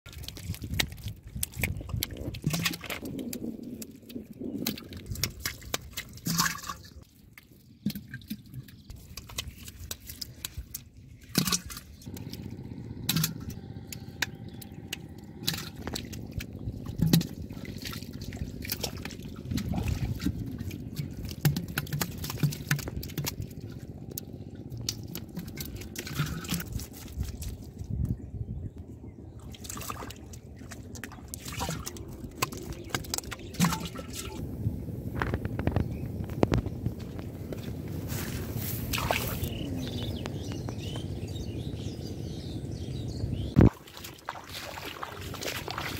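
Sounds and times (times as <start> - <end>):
fish splashing in water: 0.1 - 27.7, 29.4 - 34.4, 38.8 - 39.6, 43.5 - 45.9
water trickling and sloshing: 0.1 - 45.9.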